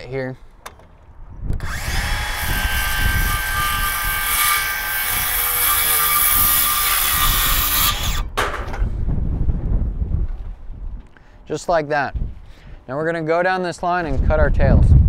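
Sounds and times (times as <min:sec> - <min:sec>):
circular saw cutting wood: 0:01.6 - 0:08.3.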